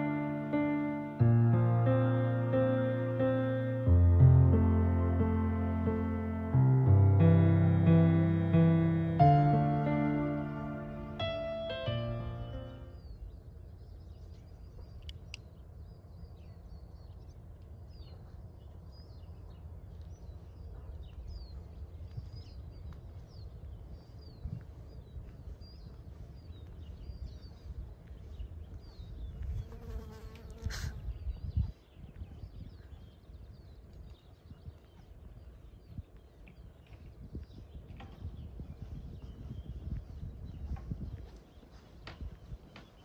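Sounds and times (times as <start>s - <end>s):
steady low rumble: 0.0s - 29.6s
small birds chirping: 0.0s - 43.0s.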